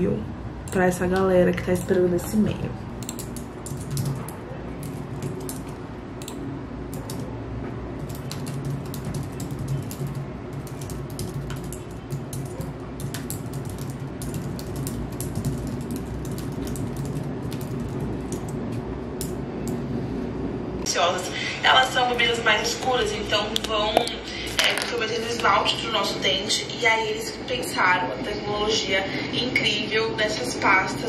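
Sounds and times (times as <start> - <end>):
keyboard typing clicks: 3.0 - 7.3, 8.0 - 19.8.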